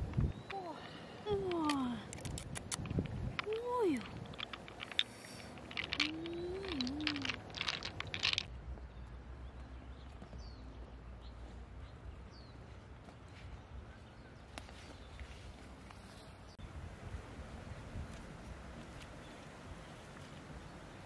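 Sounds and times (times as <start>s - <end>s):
pearls clicking: 0.1s - 8.5s.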